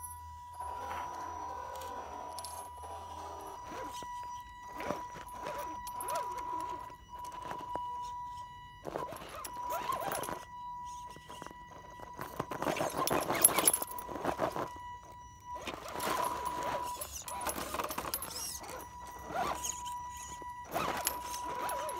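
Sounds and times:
electric motor whining: 0:00.0 - 0:21.9
tyres scrabbling on rock: 0:08.8 - 0:14.8.

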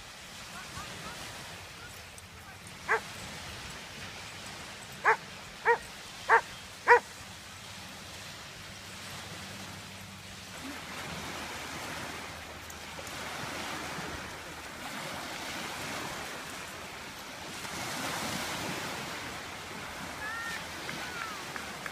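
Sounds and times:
waves washing onto beach: 0:00.0 - 0:21.9.

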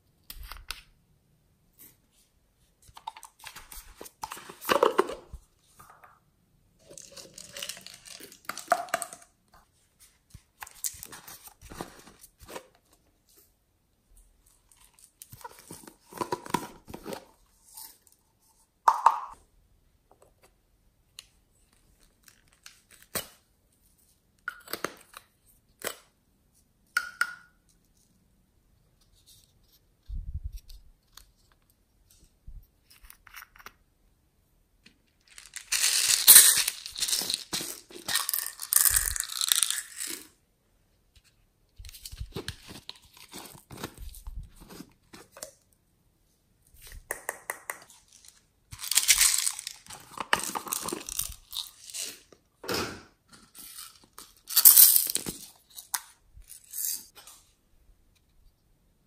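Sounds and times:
plastic rustling and crackling: 0:06.8 - 0:09.3, 0:35.2 - 0:40.2.

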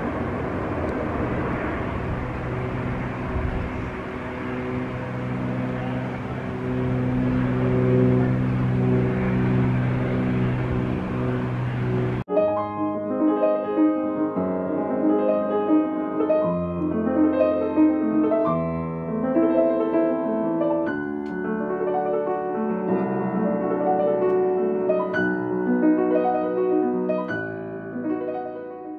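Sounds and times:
piano music: 0:00.0 - 0:28.9.

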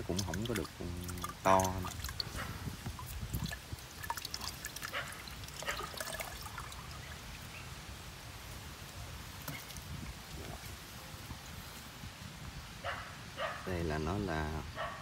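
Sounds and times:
coconut water dripping into plastic jug: 0:00.0 - 0:07.5.

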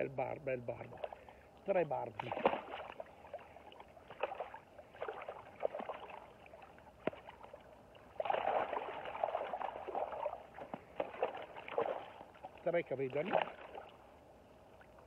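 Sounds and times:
water splashing around a net: 0:00.8 - 0:01.3, 0:02.0 - 0:14.1
water pouring from a net: 0:02.2 - 0:12.3.

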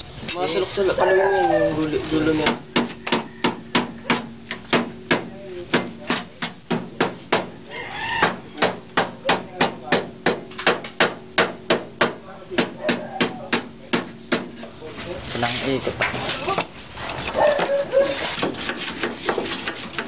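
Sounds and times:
hammer striking sheet steel: 0:08.6 - 0:14.7.

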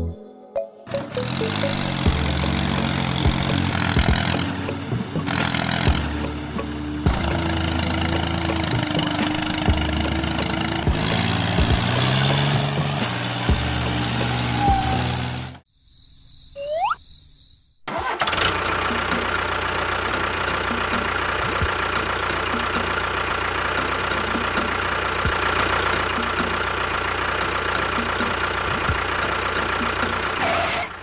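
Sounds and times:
engine idling with light ticks: 0:19.0 - 0:30.4.

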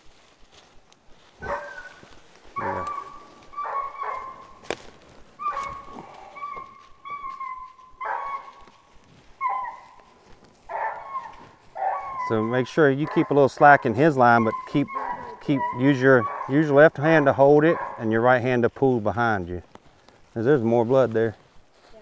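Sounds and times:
puppy whining and yelping: 0:02.6 - 0:04.6, 0:05.4 - 0:08.6, 0:09.4 - 0:10.0, 0:10.7 - 0:12.3, 0:14.4 - 0:16.5.

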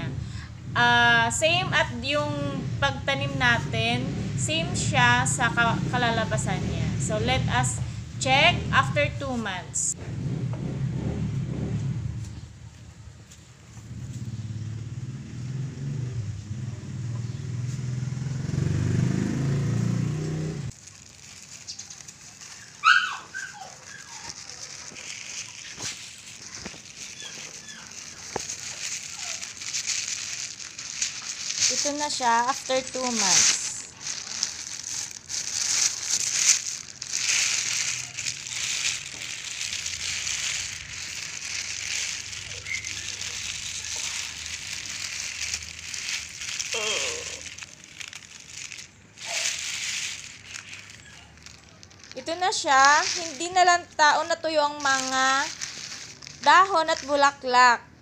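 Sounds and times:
motor vehicle engine running: 0:00.0 - 0:22.6, 0:24.0 - 0:58.0
outdoor ambience: 0:00.0 - 0:58.0
faint plastic crinkling: 0:20.7 - 0:57.7.

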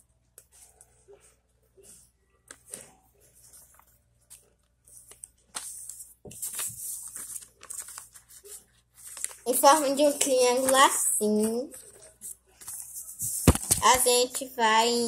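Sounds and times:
paper rustling and crinkling: 0:02.4 - 0:14.1.

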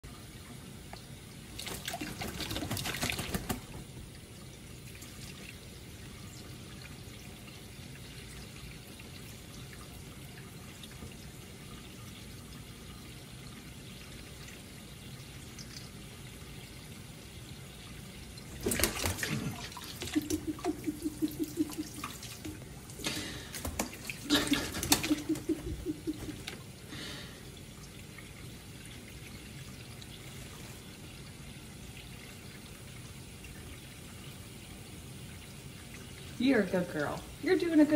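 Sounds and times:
parrot splashing in water: 0:01.6 - 0:04.0, 0:18.5 - 0:27.3.

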